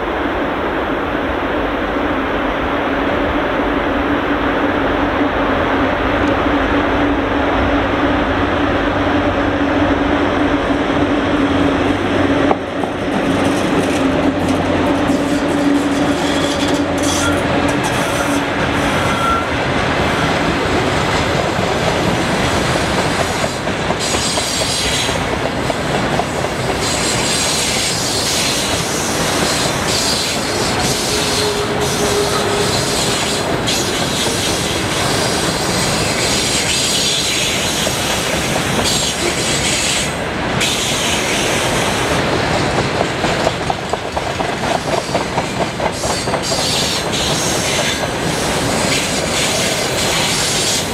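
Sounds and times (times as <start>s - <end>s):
electric locomotive hum: 0.0s - 50.9s
train wheels rumbling and clattering: 4.2s - 50.9s
wheels clicking over rail joints: 42.3s - 47.4s.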